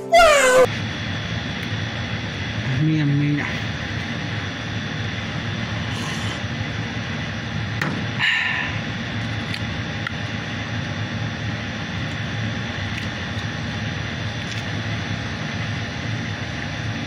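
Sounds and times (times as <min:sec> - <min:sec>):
machinery hum: 0:00.0 - 0:17.0
breathy exhale: 0:05.8 - 0:06.5, 0:08.2 - 0:08.9.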